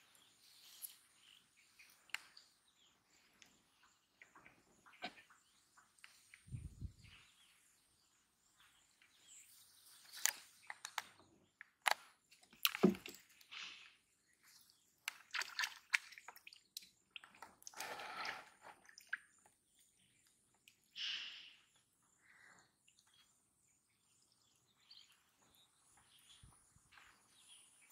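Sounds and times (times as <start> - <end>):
bird chirps: 19.3 - 27.9.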